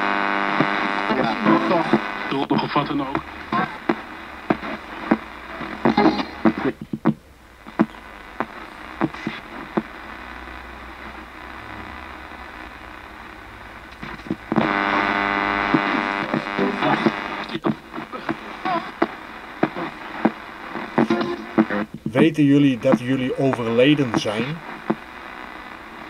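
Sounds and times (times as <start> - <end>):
radio static hiss and hum: 0.0 - 26.0
radio clicks: 0.3 - 22.2, 22.8 - 26.0
loud buzzing tone: 10.0 - 17.4.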